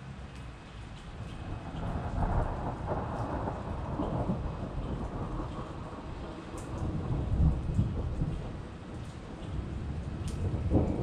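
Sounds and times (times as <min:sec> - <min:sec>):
rain on pavement and puddles: 0:00.0 - 0:11.0
thunder rumbling: 0:01.4 - 0:11.0.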